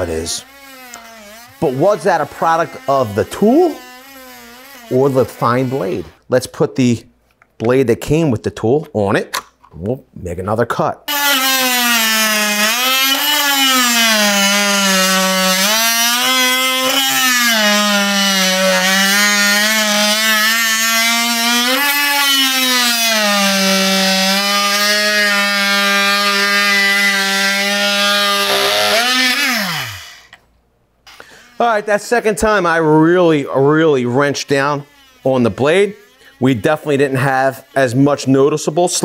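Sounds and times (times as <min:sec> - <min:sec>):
motor winding down: 0:00.0 - 0:06.2, 0:11.1 - 0:30.4, 0:31.1 - 0:32.4
oscillating multi-tool cutting wood: 0:00.0 - 0:06.3, 0:11.1 - 0:30.4, 0:31.1 - 0:39.0.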